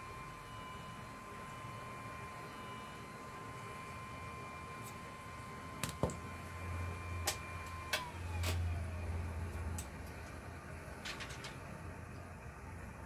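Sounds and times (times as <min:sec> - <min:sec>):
faint steady high tone: 0:00.0 - 0:08.0.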